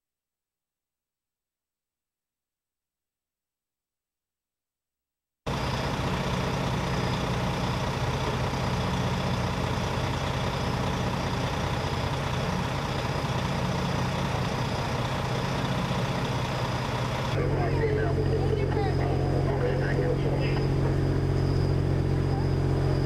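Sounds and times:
fire engine idling: 0:05.5 - 0:23.0.

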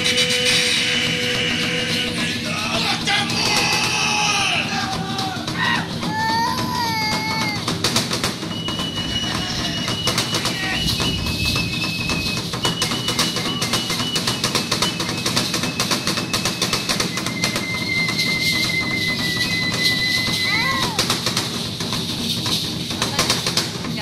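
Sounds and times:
rapid dense drumbeats: 0:00.0 - 0:24.0.

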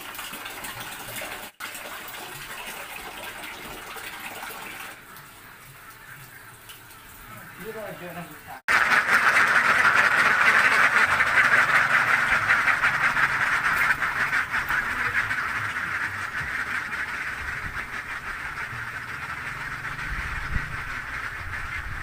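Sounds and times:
ducks quacking: 0:05.2 - 0:22.0.

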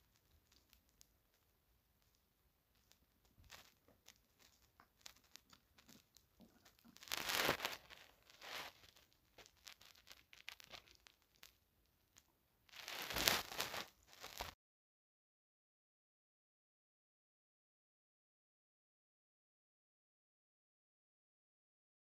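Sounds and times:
crochet hook ticks and rustles: 0:00.0 - 0:11.6
rustling scrapes: 0:03.4 - 0:11.5, 0:12.7 - 0:14.6.

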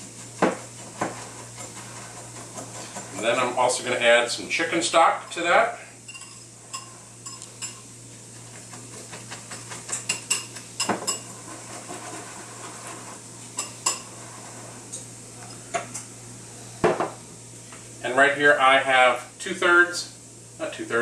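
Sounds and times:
utensil clinking against mixing bowl: 0:08.7 - 0:11.4.

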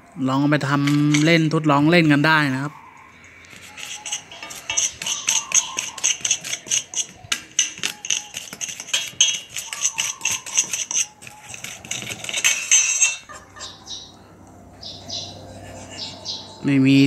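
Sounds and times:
metal spoon scraping metal bowl: 0:00.7 - 0:01.4, 0:03.4 - 0:13.9.

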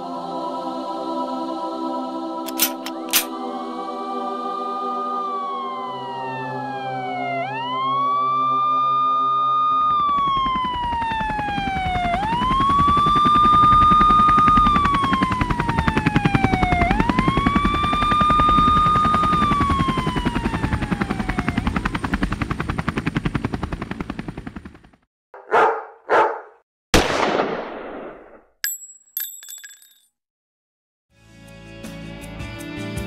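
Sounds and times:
siren wailing: 0:04.2 - 0:22.2.

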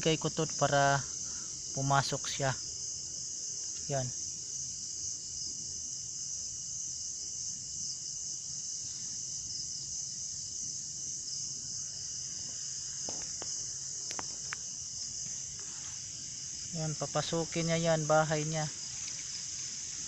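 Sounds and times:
crickets and insects trilling: 0:00.0 - 0:20.0.

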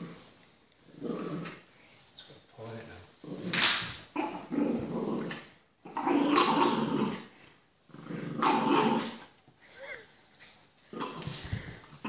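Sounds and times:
dogs growling in play: 0:00.0 - 0:01.8, 0:03.2 - 0:09.4, 0:10.9 - 0:12.0.

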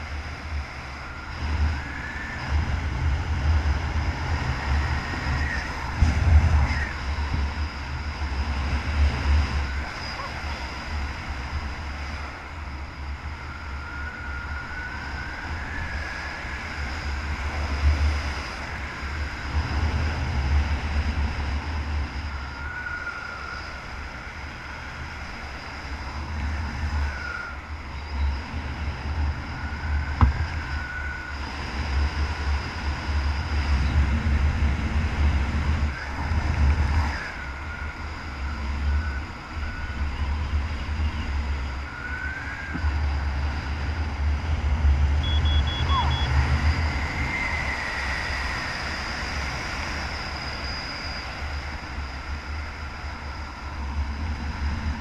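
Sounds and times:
wind buffeting microphone: 0:00.0 - 0:55.0
thin wavering whistle: 0:12.6 - 0:17.2, 0:22.2 - 0:24.8, 0:25.6 - 0:28.5, 0:37.0 - 0:43.4, 0:45.2 - 0:53.6.

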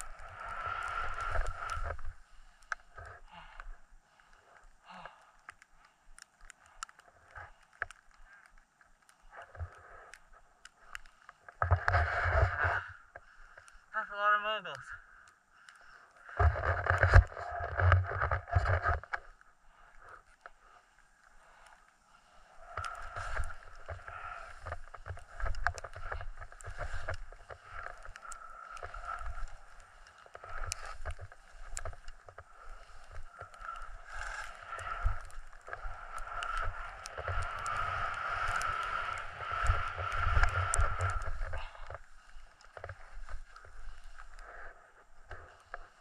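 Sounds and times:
skis scraping over snow: 0:00.0 - 0:03.2, 0:11.6 - 0:13.0, 0:20.6 - 0:46.0.

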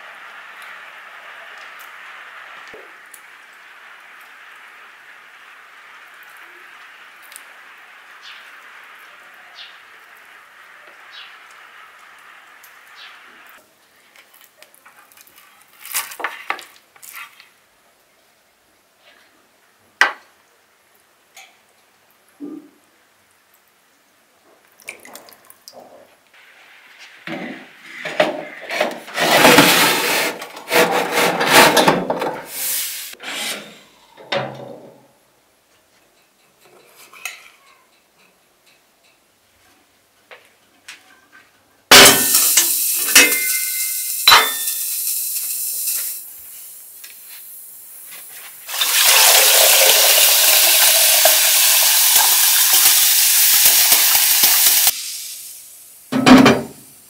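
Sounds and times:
enamel kettle clinking: 0:42.0 - 0:45.0
metal tray clattering: 0:43.1 - 0:44.8
water pouring into kettle: 0:48.6 - 0:55.4.

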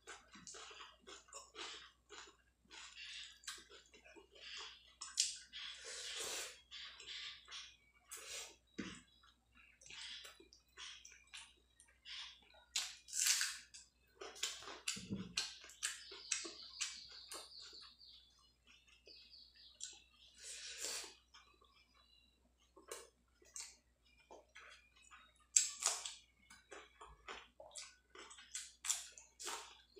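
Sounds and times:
person chewing with lip smacks: 0:00.0 - 0:05.8, 0:20.9 - 0:29.9.

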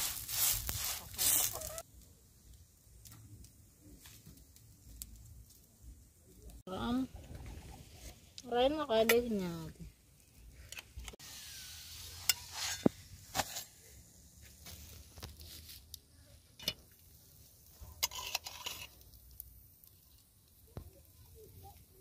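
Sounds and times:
faint sizzle: 0:07.8 - 0:22.0
flatbread handled on iron pan: 0:12.2 - 0:13.9.

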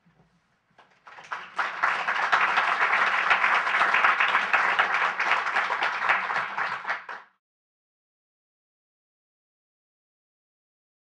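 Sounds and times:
audience applauding: 0:00.8 - 0:07.4.

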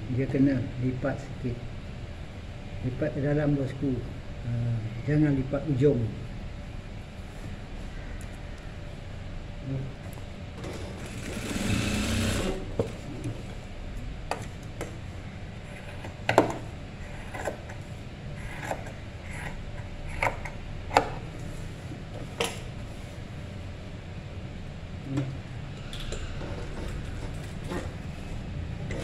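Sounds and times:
low steady hum: 0:00.0 - 0:29.0
sewing machine stitching: 0:11.1 - 0:12.6.

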